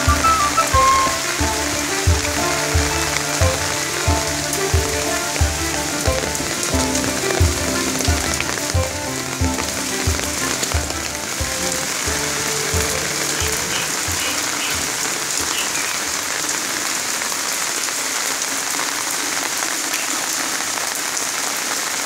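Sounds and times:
music with low beat: 0:00.0 - 0:15.0
heavy rain pouring: 0:00.0 - 0:22.0.

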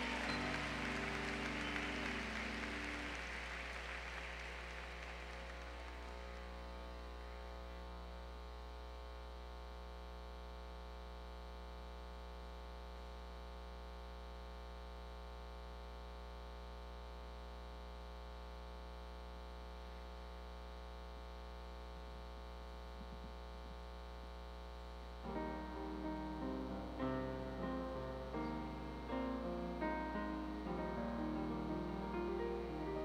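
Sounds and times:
applause: 0:00.0 - 0:07.8
low electrical hum: 0:00.0 - 0:33.0.

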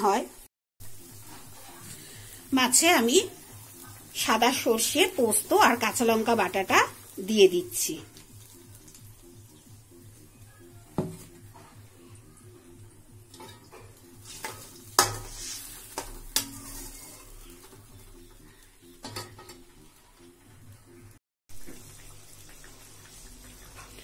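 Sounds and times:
low sizzle: 0:00.0 - 0:24.0
utensil stirring curry: 0:13.1 - 0:20.0.

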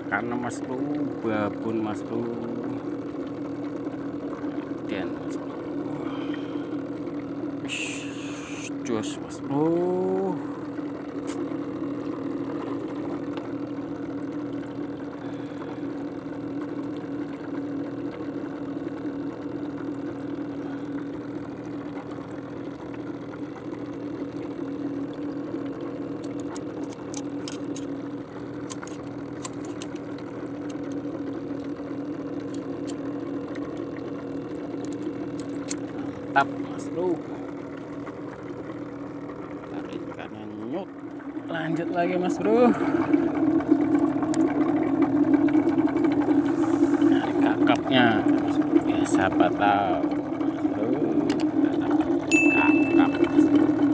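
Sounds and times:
small engine idling: 0:00.0 - 0:53.9
fishing tackle clicking and rattling: 0:26.2 - 0:27.9, 0:28.6 - 0:30.1.

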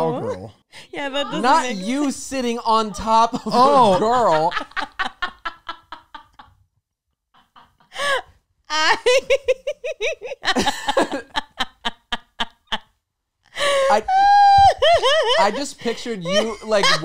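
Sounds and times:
group of people laughing: 0:03.4 - 0:06.5, 0:08.8 - 0:12.9, 0:13.6 - 0:17.0.

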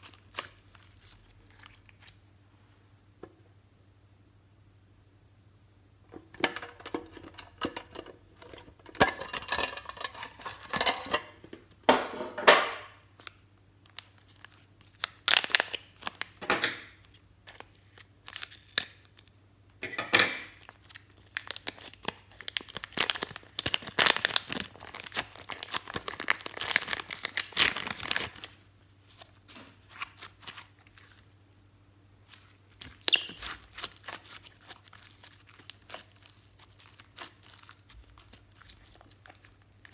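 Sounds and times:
plastic bag crinkling and tearing: 0:00.0 - 0:02.2, 0:13.2 - 0:19.3, 0:20.6 - 0:31.4, 0:32.3 - 0:39.9
slime squeezing: 0:20.6 - 0:31.4, 0:32.2 - 0:39.9.

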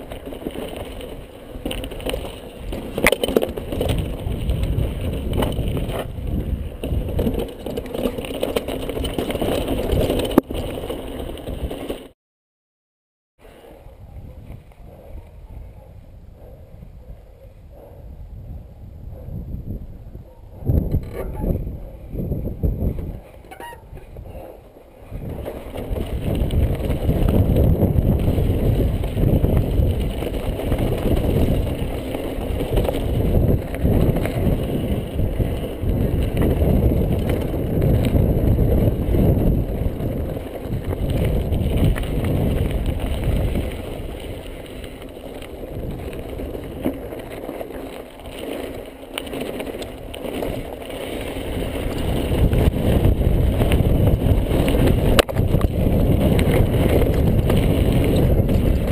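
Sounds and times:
wind buffeting microphone: 0:00.0 - 0:08.2, 0:13.8 - 0:58.9
bike knocks and rattles: 0:00.0 - 0:12.1, 0:25.0 - 0:58.9
tyres crunching on gravel: 0:00.0 - 0:12.1, 0:25.3 - 0:58.9.

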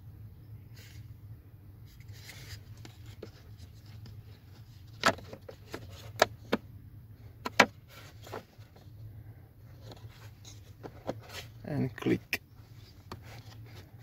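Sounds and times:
steady low hum: 0:00.0 - 0:14.0
plastic cover clicks and knocks: 0:07.4 - 0:07.7.

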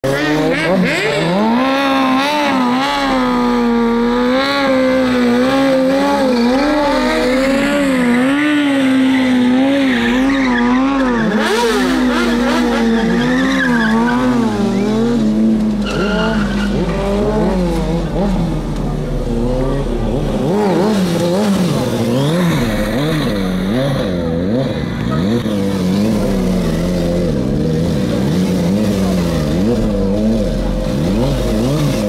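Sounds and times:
motorcycle engine revving: 0:00.0 - 0:32.0.

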